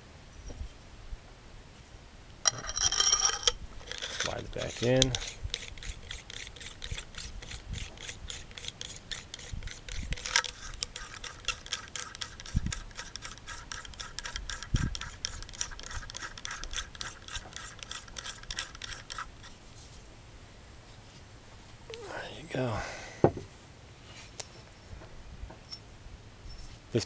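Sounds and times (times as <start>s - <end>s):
metal threads turning: 2.4s - 19.5s.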